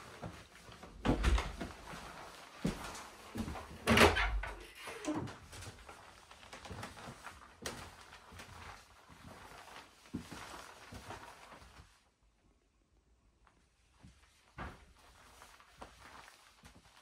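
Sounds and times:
footsteps on wooden floorboards: 0.0 - 3.9
wooden door pushed open: 1.0 - 1.6, 3.8 - 5.3.

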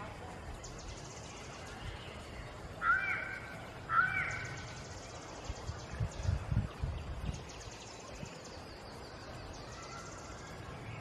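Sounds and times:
crow cawing: 2.8 - 4.6.

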